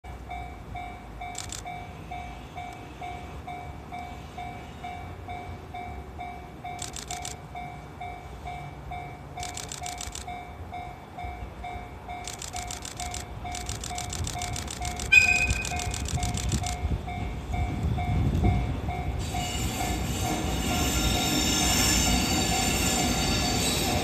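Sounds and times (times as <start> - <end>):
level crossing warning bell: 0.1 - 24.0
rapid high ticking: 9.4 - 10.3, 12.2 - 16.9.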